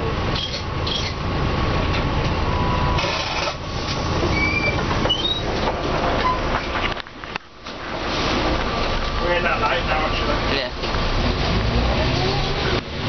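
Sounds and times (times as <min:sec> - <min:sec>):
bus engine and road rumble: 0:00.0 - 0:13.0
brief high squeaks: 0:00.4 - 0:01.2, 0:04.2 - 0:05.6, 0:06.2 - 0:06.5.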